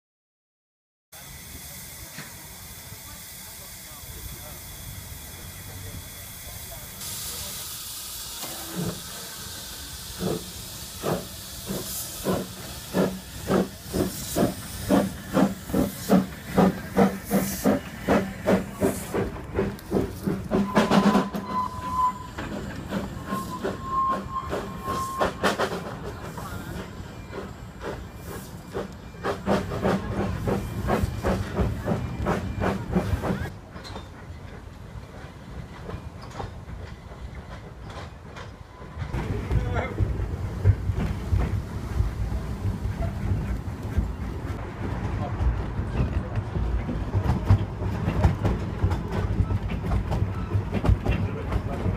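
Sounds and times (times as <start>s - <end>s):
steam hiss: 1.2s - 33.5s
steam locomotive chuffing: 1.2s - 51.9s
steam whistle blasts: 20.6s - 25.6s.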